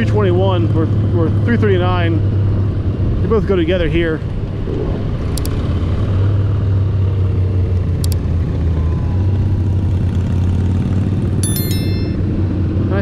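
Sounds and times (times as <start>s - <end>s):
road and wind noise: 0.0s - 13.0s.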